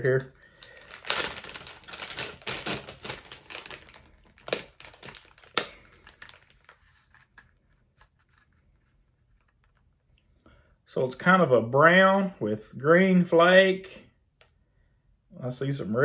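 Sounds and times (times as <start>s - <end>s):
plastic packaging crinkling: 0.0s - 10.0s.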